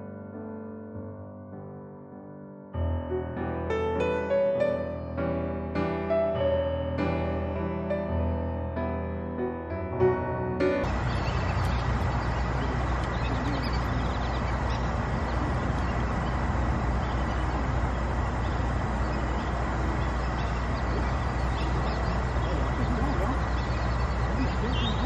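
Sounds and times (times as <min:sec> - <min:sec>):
piano music: 0:00.0 - 0:25.0
ducks quacking: 0:10.8 - 0:25.0
low traffic rumble: 0:10.8 - 0:25.0.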